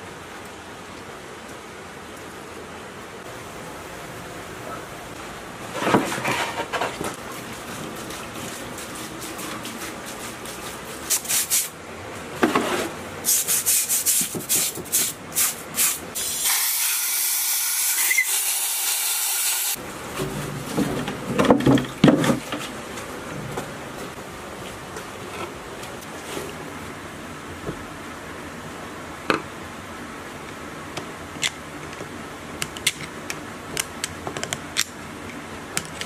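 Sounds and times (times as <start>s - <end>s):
hose hissing: 13.3s - 19.8s.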